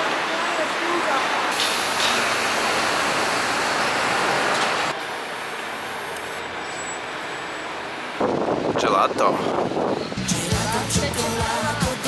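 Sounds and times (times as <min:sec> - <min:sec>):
metro train rushing: 0:01.5 - 0:10.2.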